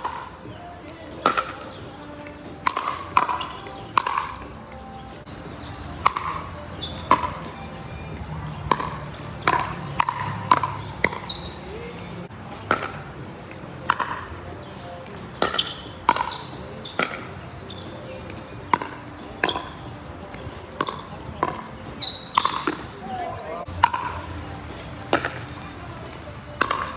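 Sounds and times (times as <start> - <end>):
ball bouncing on hard court: 0.0 - 4.5, 5.6 - 11.6, 12.6 - 14.4, 15.0 - 22.9, 23.7 - 26.9
paddles striking plastic ball: 1.1 - 4.5, 6.0 - 7.4, 8.6 - 11.3, 26.1 - 26.9.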